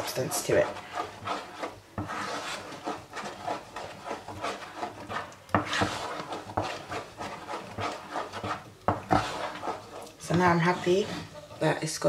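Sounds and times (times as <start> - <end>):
wooden spoon scraping porridge: 0.0 - 12.0.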